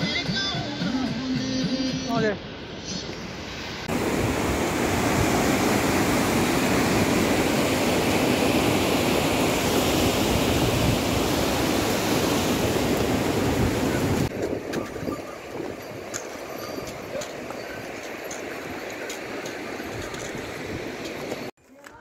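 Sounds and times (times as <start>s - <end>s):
river rushing over boulders: 3.8s - 14.3s.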